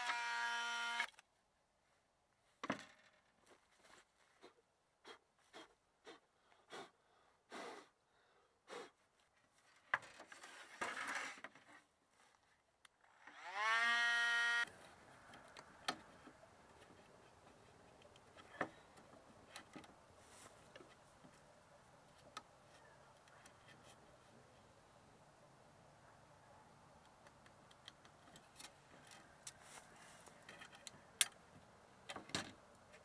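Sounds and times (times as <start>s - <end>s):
power tool motor whining: 0.0s - 1.1s, 13.2s - 14.7s.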